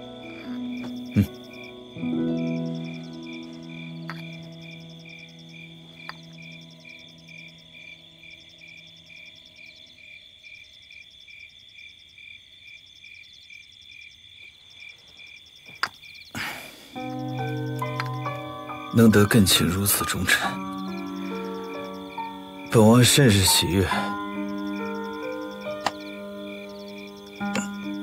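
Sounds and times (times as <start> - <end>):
soft background music: 0.0 - 9.6, 17.0 - 28.0
frogs and insects chirring: 0.0 - 28.0.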